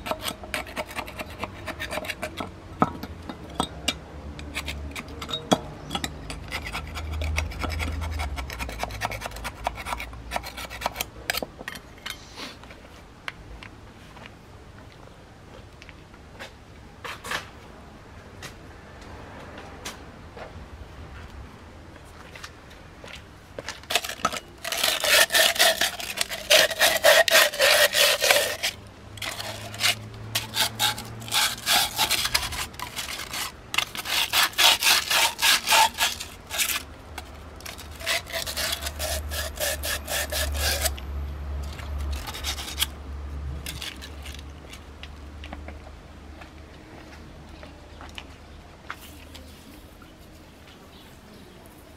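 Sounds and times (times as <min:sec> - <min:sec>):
scraping strokes on metal: 0:00.0 - 0:02.5, 0:23.9 - 0:41.0, 0:41.6 - 0:42.9.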